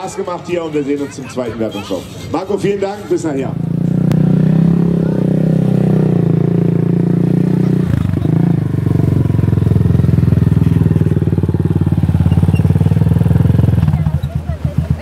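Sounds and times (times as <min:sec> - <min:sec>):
quad engine running: 0:03.1 - 0:15.0.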